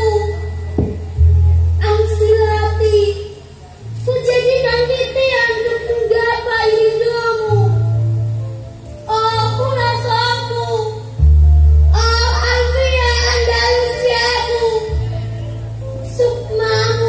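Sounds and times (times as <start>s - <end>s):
sustained low bass notes: 0.0s - 17.0s.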